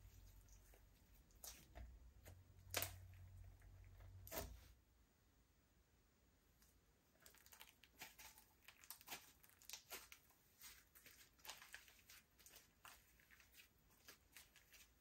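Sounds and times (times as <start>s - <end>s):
sticky clicks of kneaded slime: 0.6s - 4.5s.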